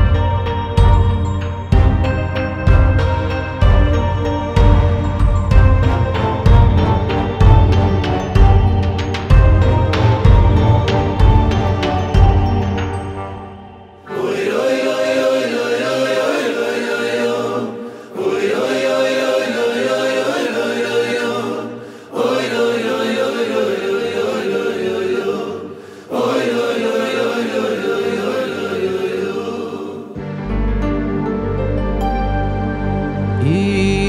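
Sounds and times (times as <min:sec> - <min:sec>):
male choir singing: 0:14.0 - 0:30.3, 0:33.4 - 0:34.0.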